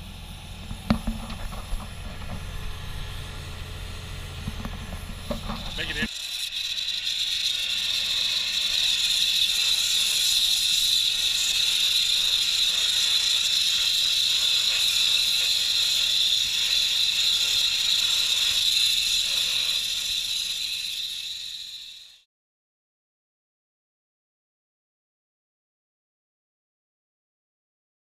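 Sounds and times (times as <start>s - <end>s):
media blaster hissing: 0.0s - 22.2s.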